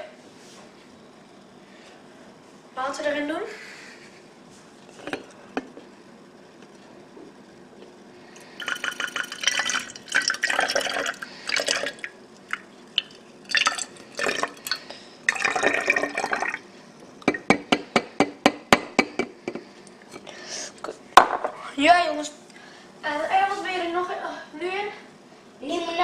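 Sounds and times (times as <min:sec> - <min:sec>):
water pouring into a cup: 0:08.4 - 0:16.7
spoon clinking in a cup: 0:08.6 - 0:10.3.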